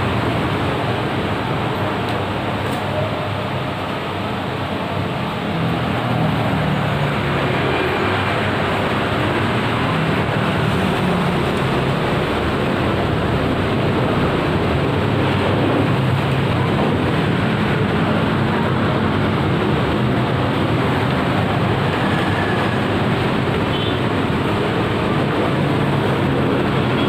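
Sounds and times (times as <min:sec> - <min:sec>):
loud rumbling noise: 0:00.0 - 0:27.0.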